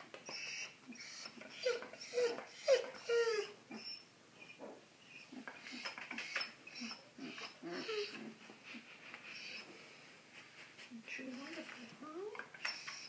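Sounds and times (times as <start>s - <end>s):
puppies squeaking and whimpering: 0.2s - 9.7s, 12.5s - 13.0s
puppy clicks and snuffles: 5.5s - 6.6s.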